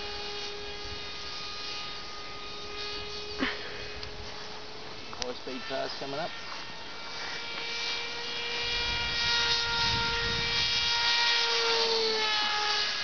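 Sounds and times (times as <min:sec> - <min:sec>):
model airplane motor buzzing: 0:00.0 - 0:13.0
wind rumble on microphone: 0:08.6 - 0:11.9.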